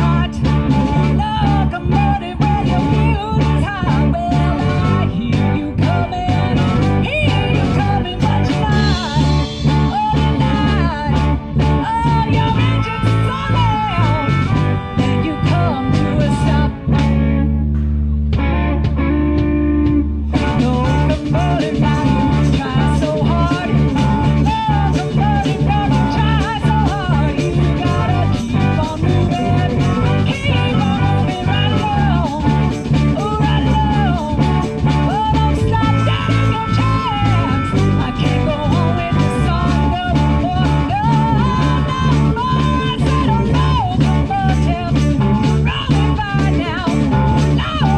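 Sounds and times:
blues-rock band playing: 0.0 - 47.9
harmonica wailing: 10.9 - 17.6, 34.8 - 39.9.

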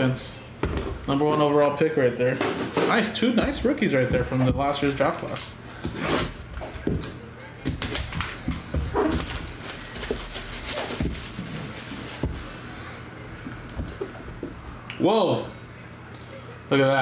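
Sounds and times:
plastic wrap crinkling and tearing: 7.8 - 12.6.

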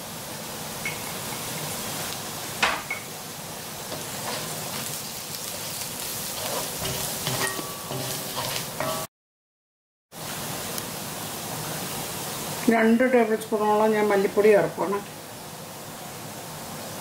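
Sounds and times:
food sizzling in hot oil: 0.0 - 9.1, 10.2 - 17.0
spatula scraping wok: 3.9 - 9.1
spatula knocking on pan: 6.8 - 9.1.

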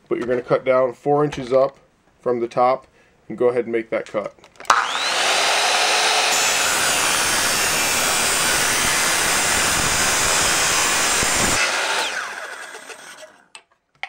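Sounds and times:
motor winding down whine: 4.7 - 13.4
chop saw cutting metal: 4.7 - 13.5.

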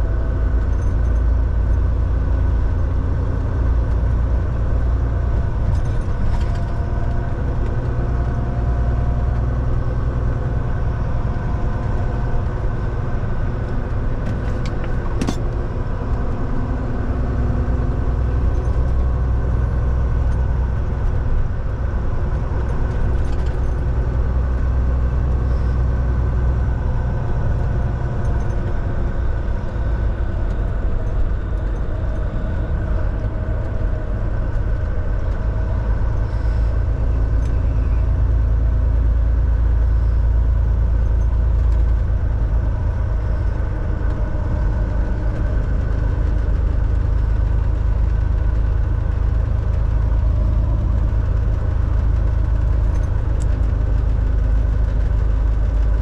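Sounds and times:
truck engine and road rumble: 0.0 - 56.0.

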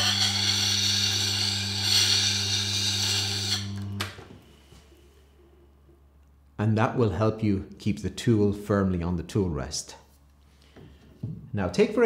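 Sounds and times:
sharpening machine motor hum: 0.0 - 4.2.

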